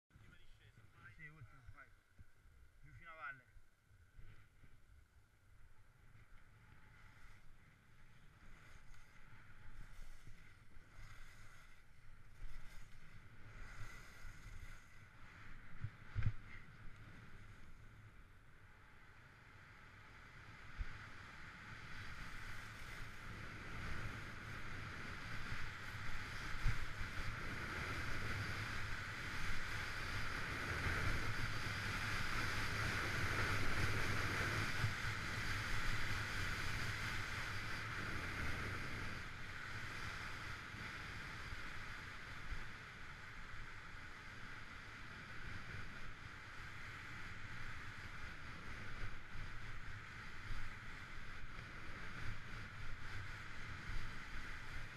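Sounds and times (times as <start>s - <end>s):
skis scraping on snow: 6.4s - 18.1s, 20.5s - 54.9s
wind on microphone: 20.6s - 54.9s.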